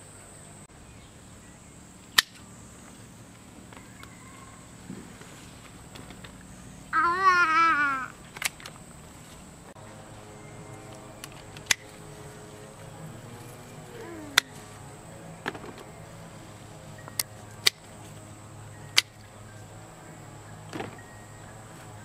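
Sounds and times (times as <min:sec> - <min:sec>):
pruning shears snipping: 0:02.0 - 0:02.5, 0:10.7 - 0:16.2, 0:17.0 - 0:19.4.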